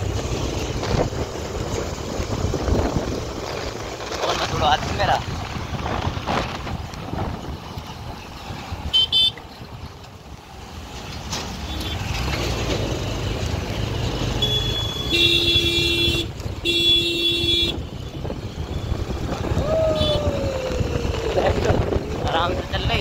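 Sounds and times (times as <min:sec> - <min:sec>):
engines rumbling: 0:00.0 - 0:23.0
wind: 0:00.0 - 0:23.0
high horn beeps: 0:14.4 - 0:17.8
long horn blasts: 0:14.4 - 0:17.8.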